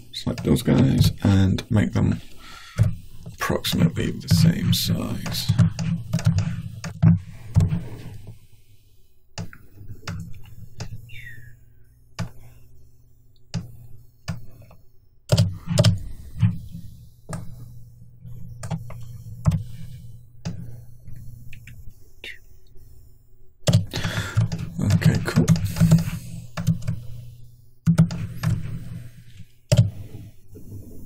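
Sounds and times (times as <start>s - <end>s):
steady low hum: 0.0s - 31.0s
computer mouse clicks: 5.1s - 8.4s, 9.4s - 11.5s, 12.1s - 12.6s, 13.3s - 22.8s, 23.6s - 30.8s
keyboard keystrokes: 23.6s - 27.0s.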